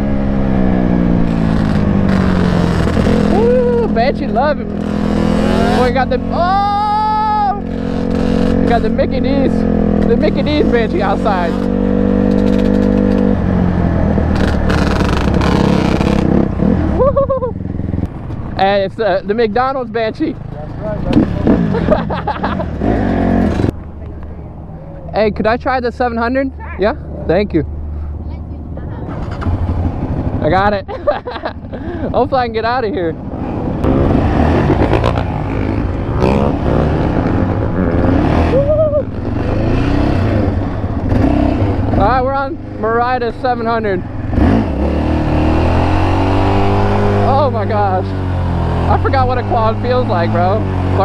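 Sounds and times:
quad engine revving: 0.0s - 18.1s, 20.4s - 23.8s, 33.2s - 51.0s.

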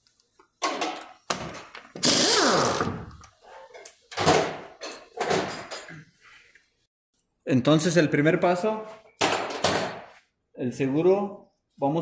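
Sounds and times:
impact wrench bursts: 2.0s - 3.0s.

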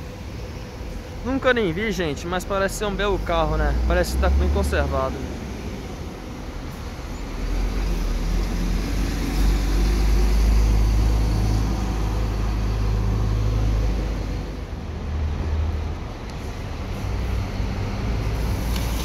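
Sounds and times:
bus engine rumbling: 0.0s - 19.0s
second bus engine: 0.0s - 19.0s
tyre hiss on wet road: 16.4s - 19.0s.

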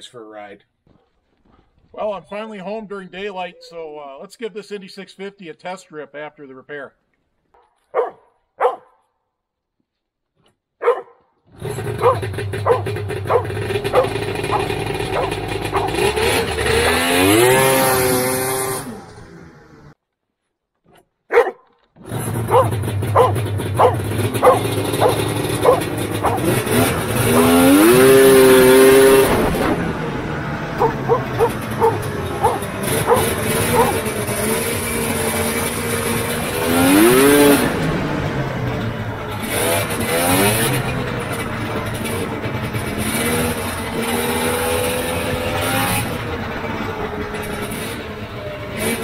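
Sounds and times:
dog barking: 7.6s - 9.0s, 10.8s - 11.3s, 12.0s - 16.0s, 21.3s - 21.6s, 22.5s - 26.5s, 30.8s - 34.0s
two-stroke engine running: 10.8s - 19.9s, 21.4s - 49.0s.

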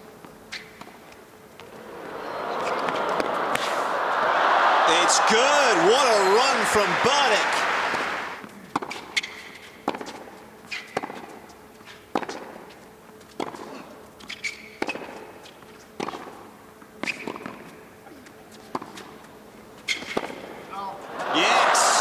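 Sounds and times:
shoe squeaks: 0.5s - 0.8s, 9.1s - 9.7s, 10.7s - 11.0s, 14.2s - 15.0s, 17.0s - 17.4s, 19.8s - 20.2s
tennis ball hit by rackets: 2.6s - 3.8s, 8.7s - 11.4s, 17.0s - 17.7s, 19.9s - 20.5s.

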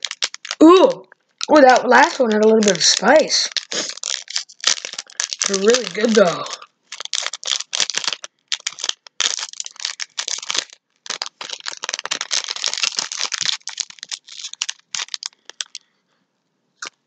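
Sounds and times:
plastic snack packaging crinkling: 0.0s - 15.9s, 16.8s - 17.0s.

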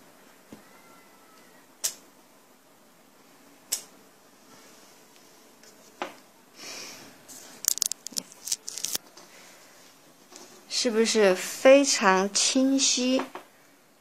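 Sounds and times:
paper rustle: 7.3s - 9.0s.

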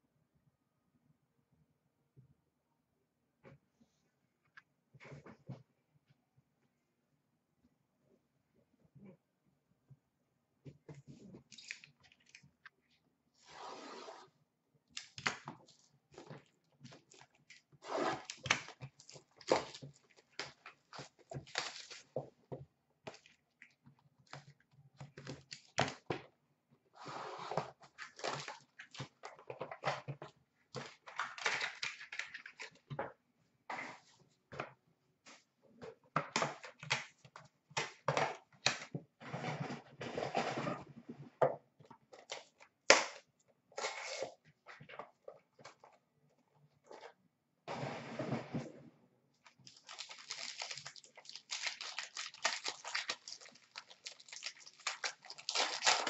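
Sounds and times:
foil packs tearing and crinkling: 49.6s - 56.0s.

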